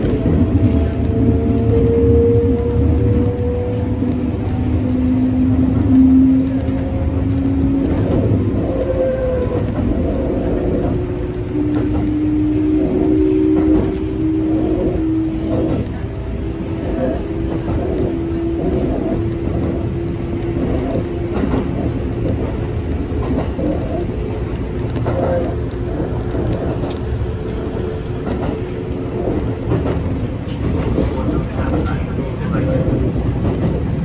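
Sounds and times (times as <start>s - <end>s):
electric train rumbling: 0.0s - 34.0s.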